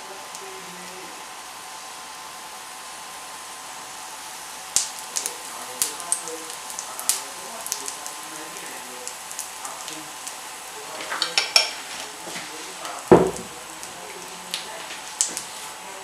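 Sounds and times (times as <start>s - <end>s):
butter sizzling in a frying pan: 0.0s - 16.0s
loud knock: 13.1s - 13.6s.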